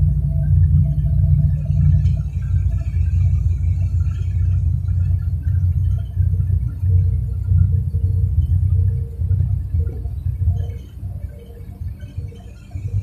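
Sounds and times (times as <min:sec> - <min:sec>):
vehicle cabin rumble: 0:00.0 - 0:13.0.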